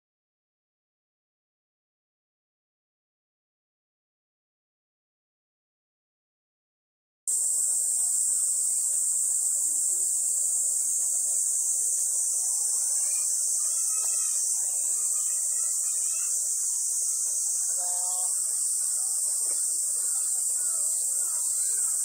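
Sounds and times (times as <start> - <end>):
faint distant voices: 7.3 - 22.0
insect chorus: 7.3 - 22.0.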